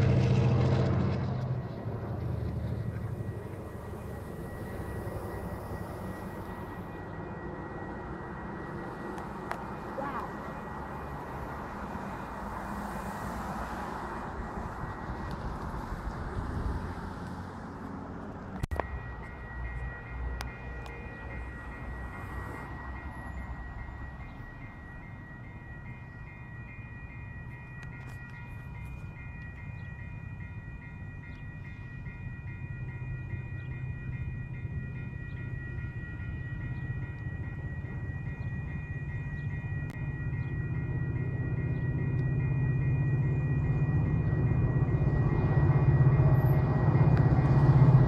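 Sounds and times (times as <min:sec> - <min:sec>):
low rumble: 0:00.0 - 0:04.6
railroad crossing bell ringing: 0:00.0 - 0:48.0
road traffic rumble: 0:00.0 - 0:48.0.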